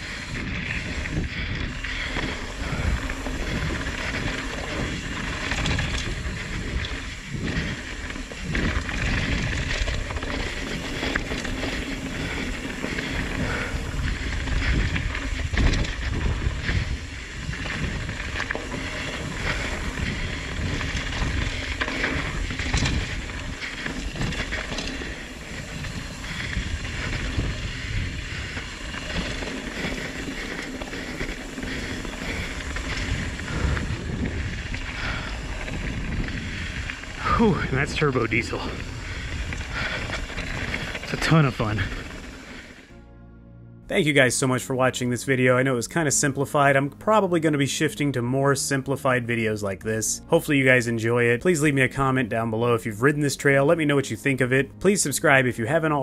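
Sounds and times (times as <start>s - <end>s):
tyres rumbling on dirt: 0.0s - 43.0s, 43.9s - 56.0s
wind on microphone: 0.0s - 43.0s
bike knocks and rattles: 2.1s - 36.6s.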